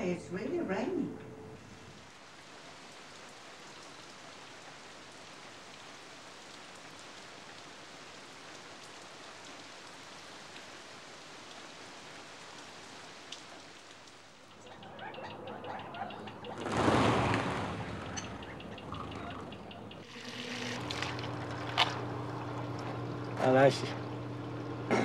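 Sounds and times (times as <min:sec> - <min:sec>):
rain on gravel: 0:01.6 - 0:14.7, 0:20.0 - 0:24.9.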